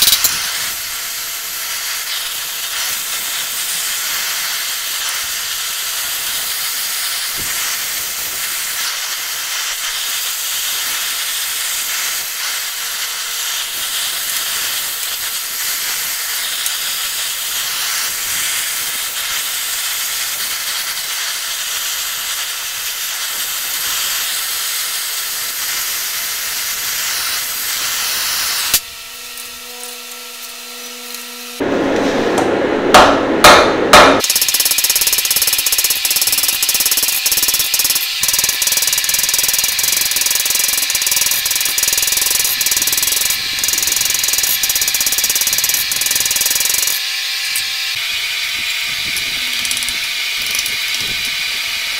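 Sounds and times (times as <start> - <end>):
cutting torch hissing: 0.0 - 28.8, 34.2 - 51.9
hammer blows on hot steel: 31.6 - 47.0.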